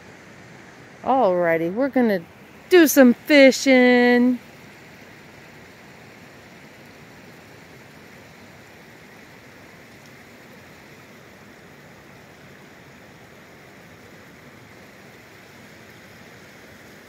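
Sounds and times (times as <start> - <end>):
faint flowing stream: 0.0 - 17.0.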